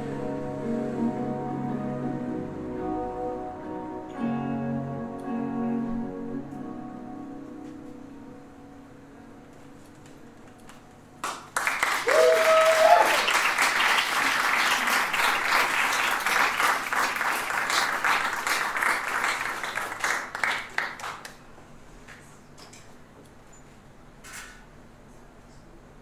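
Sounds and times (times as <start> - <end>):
audience applauding: 11.2 - 21.4
person cheering: 12.0 - 13.4.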